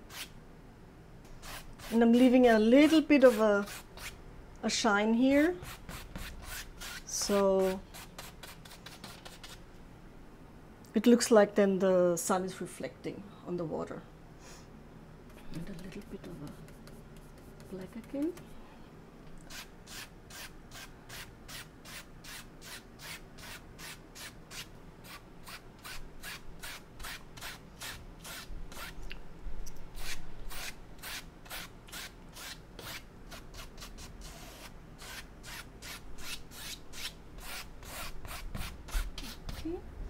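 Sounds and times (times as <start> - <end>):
paintbrush stroking canvas: 15.8 - 18.1.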